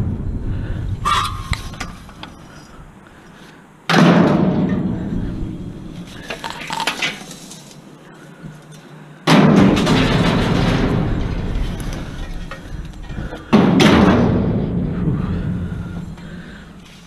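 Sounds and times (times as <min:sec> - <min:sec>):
scrap metal crashing: 0:09.3 - 0:15.9.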